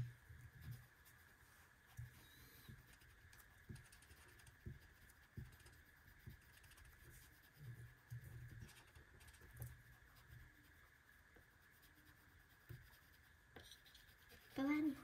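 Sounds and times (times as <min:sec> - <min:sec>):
marker tapping on paper: 0:01.9 - 0:07.1, 0:12.6 - 0:13.0.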